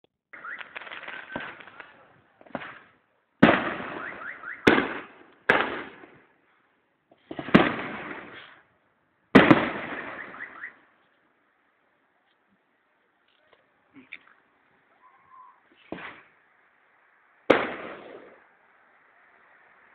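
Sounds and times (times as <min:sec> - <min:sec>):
fireworks bangs: 0:00.4 - 0:06.3, 0:07.1 - 0:08.7, 0:09.3 - 0:10.9, 0:15.4 - 0:16.5, 0:17.4 - 0:18.8
fireworks crackling: 0:00.4 - 0:06.5, 0:07.1 - 0:11.1, 0:12.6 - 0:19.9.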